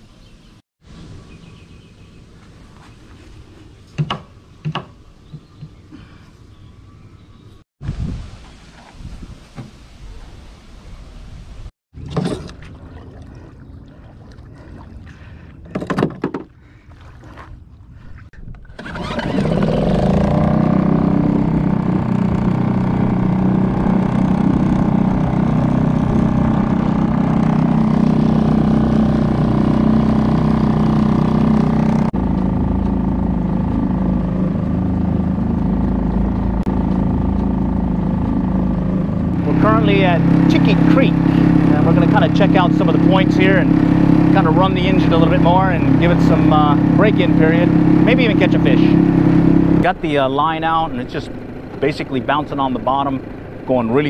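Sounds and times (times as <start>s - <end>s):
outboard motor running: 12.0s - 54.0s.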